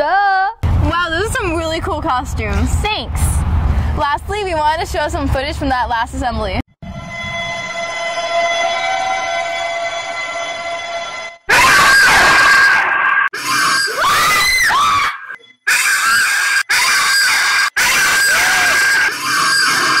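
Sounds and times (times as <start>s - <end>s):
steady ringing tone: 6.8s - 11.5s
women screaming: 11.5s - 20.0s.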